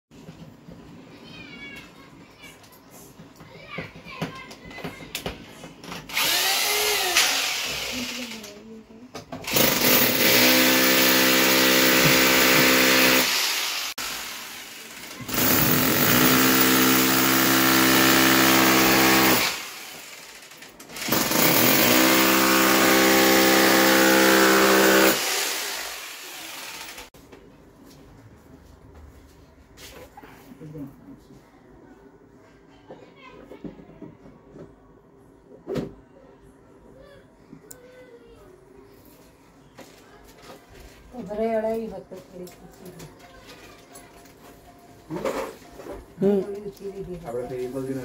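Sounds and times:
electric drill boring into wall: 6.1s - 8.4s, 9.4s - 27.1s.

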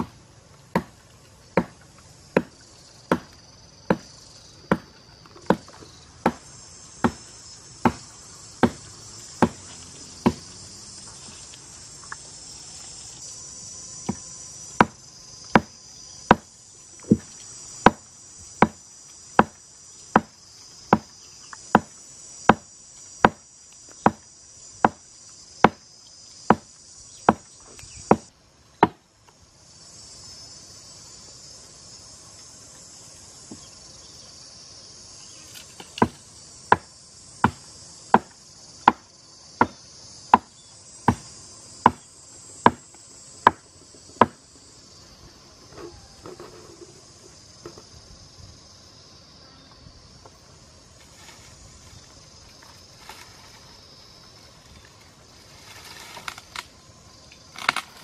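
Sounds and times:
blade chopping wood: 0.0s - 10.5s, 14.1s - 18.8s, 19.4s - 23.4s, 24.0s - 24.2s, 25.6s - 25.8s, 26.5s - 26.7s, 28.1s - 29.0s, 35.5s - 40.5s, 41.1s - 42.0s, 42.6s - 44.4s, 57.5s - 58.0s
high-pitched insect drone: 1.7s - 28.4s, 29.3s - 58.0s.

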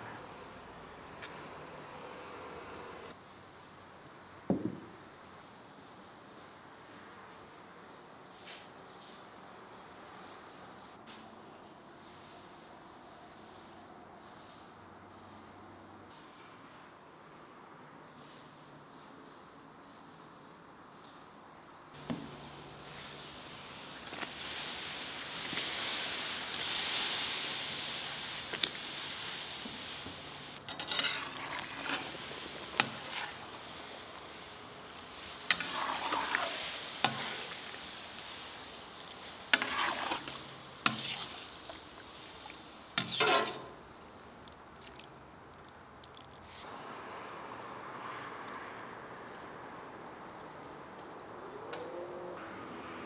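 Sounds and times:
broth boiling in a pot: 22.0s - 46.6s
metal ladle clinking on pot: 30.7s - 31.6s, 35.5s - 36.4s, 43.0s - 43.8s.

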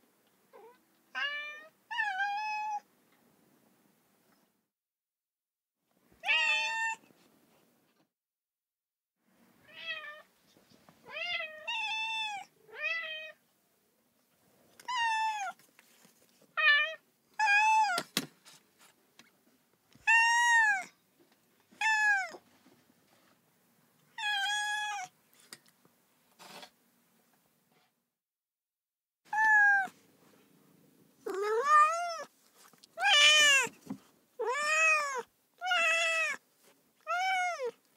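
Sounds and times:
cat meowing: 0.5s - 2.8s, 6.2s - 7.0s, 20.0s - 20.9s, 21.8s - 22.4s, 24.2s - 25.1s, 29.3s - 30.0s, 31.2s - 32.3s, 33.0s - 33.8s, 34.4s - 36.4s, 37.0s - 37.8s.

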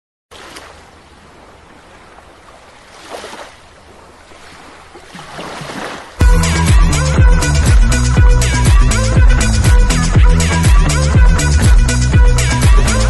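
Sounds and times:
sea waves washing: 0.3s - 6.2s
electronic dance music: 6.2s - 13.0s.

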